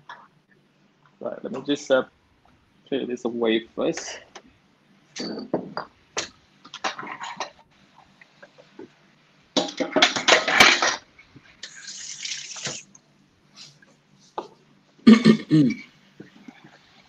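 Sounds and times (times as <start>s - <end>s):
dishes clattering: 9.6s - 11.1s
tap water running into sink: 11.6s - 12.9s.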